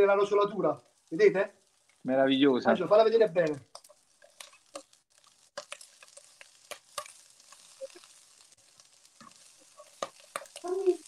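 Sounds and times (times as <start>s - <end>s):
food sizzling in oil: 0.0s - 11.0s
utensil clicking against pan: 3.4s - 5.0s, 5.6s - 7.6s, 9.2s - 10.7s.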